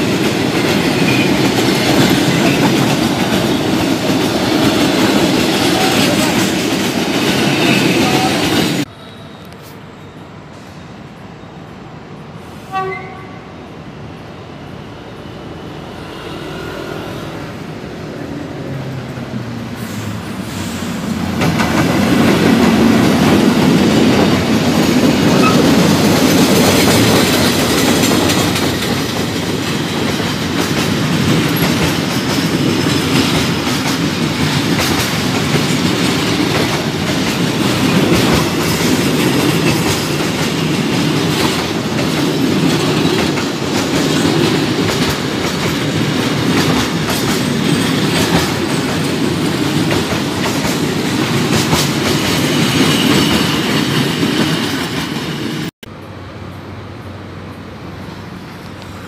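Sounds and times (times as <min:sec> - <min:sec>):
train wheels clacking on rail joints: 0:00.0 - 0:08.9, 0:21.1 - 0:55.7
freight train rumbling past: 0:00.0 - 0:59.0.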